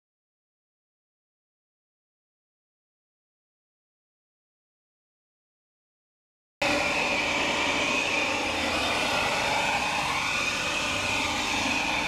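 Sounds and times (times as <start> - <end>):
leaf blower running: 6.6 - 12.0.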